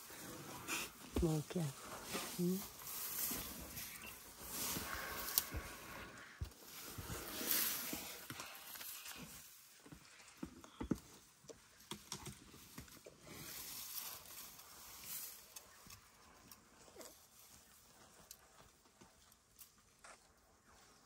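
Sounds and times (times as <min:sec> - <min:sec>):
dry grass rustling and tearing: 0:01.3 - 0:09.4, 0:13.2 - 0:16.2.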